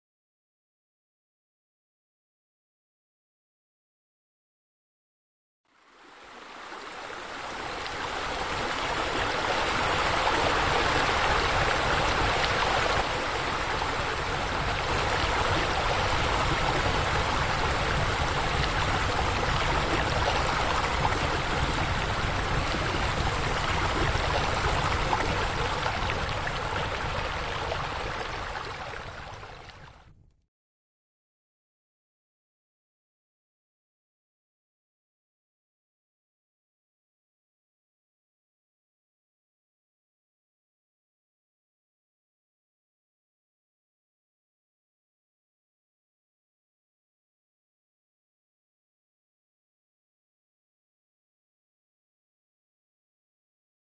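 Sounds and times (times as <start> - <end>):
running splashing water: 7.2 - 29.9.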